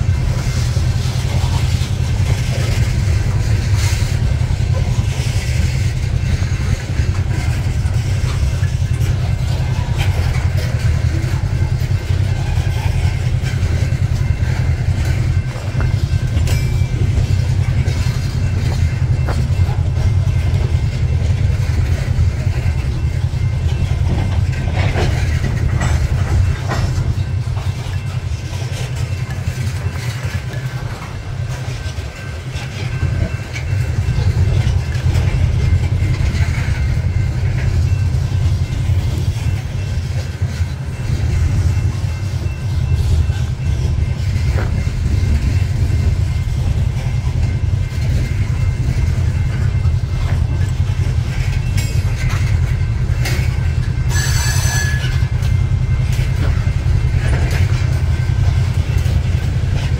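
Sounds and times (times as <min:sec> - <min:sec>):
clickety-clack over rail joints: 0:00.0 - 0:59.9
train wheels rumbling on rails: 0:00.0 - 0:59.9
faint high squeal: 0:54.0 - 0:55.3.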